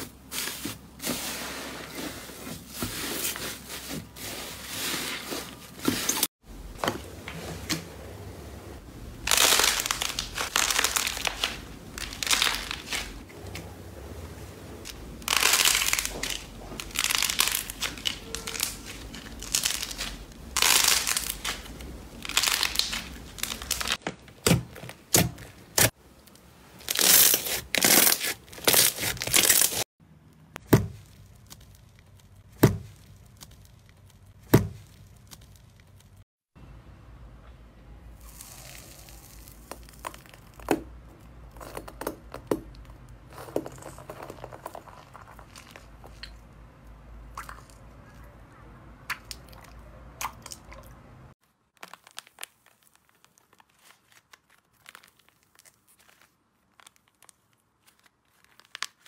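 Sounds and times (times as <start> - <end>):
slime squeezing and crackling: 9.2 - 13.2, 14.8 - 24.0, 26.8 - 29.9, 38.2 - 46.4, 51.6 - 59.0.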